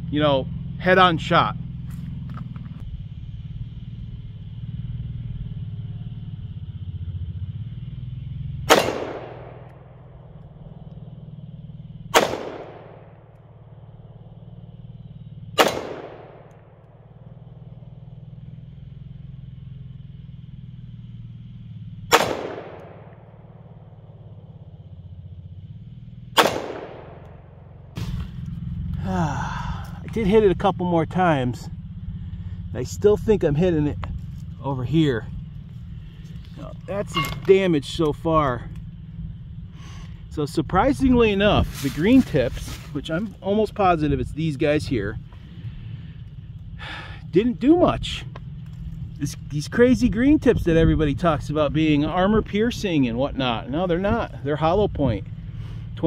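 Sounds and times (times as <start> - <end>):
low rumble: 0.0 - 56.0
gunshots with echo: 8.7 - 9.7, 12.1 - 13.3, 15.6 - 16.5, 22.1 - 23.6, 26.4 - 27.4.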